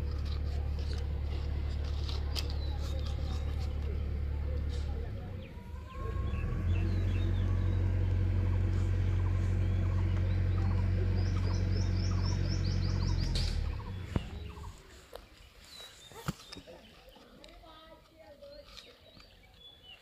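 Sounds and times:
low engine drone: 0:00.0 - 0:14.9
small birds chirping: 0:00.0 - 0:20.0.

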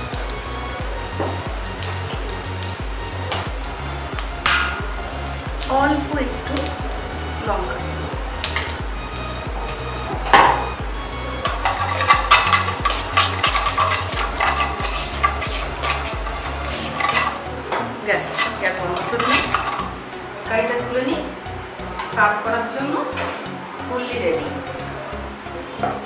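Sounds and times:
spices sizzling in hot oil: 0:00.0 - 0:20.2
metal spoon scraping in pan: 0:11.4 - 0:20.1.

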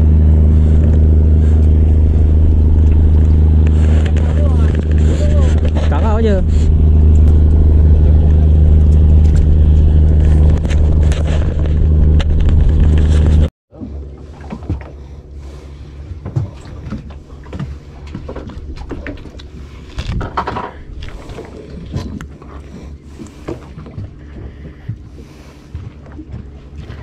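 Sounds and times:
boat engine humming: 0:00.0 - 0:27.0.

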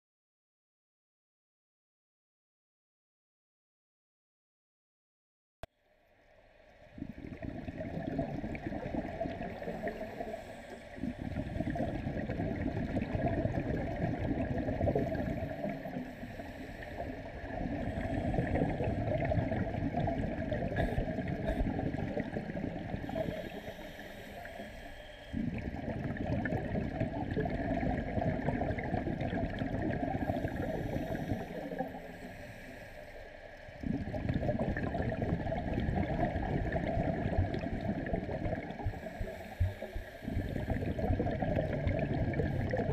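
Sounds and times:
diver exhalation bubbles: 0:07.0 - 0:10.4, 0:11.0 - 0:16.0, 0:17.0 - 0:23.7, 0:25.3 - 0:31.9, 0:33.8 - 0:42.9.

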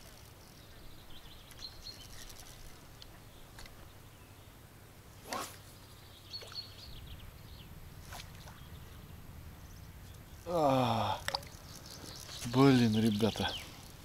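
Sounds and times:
man groaning: 0:10.5 - 0:11.3.

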